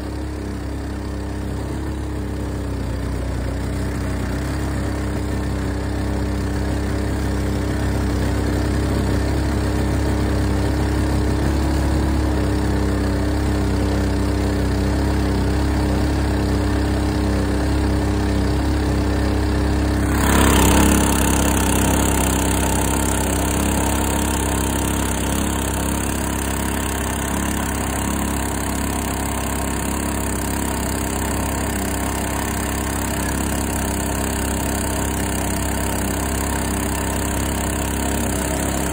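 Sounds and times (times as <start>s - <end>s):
boat motor running steadily: 0.0s - 38.9s.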